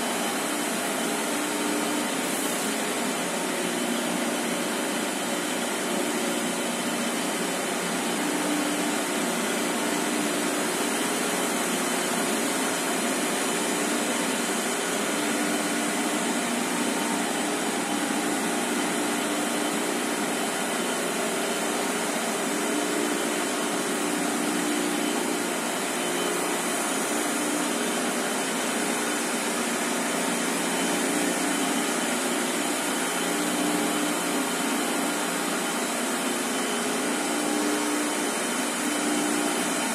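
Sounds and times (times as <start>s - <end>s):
rushing rollers and paper web: 2.0s - 3.2s.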